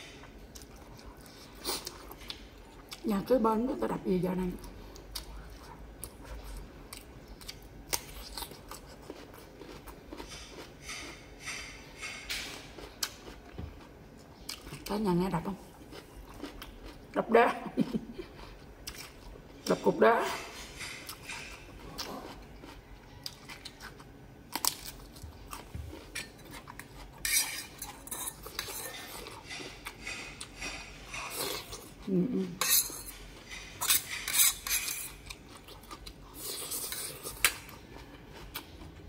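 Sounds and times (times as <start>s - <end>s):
fork scraping metal pot: 27.2s - 31.8s, 32.6s - 35.2s.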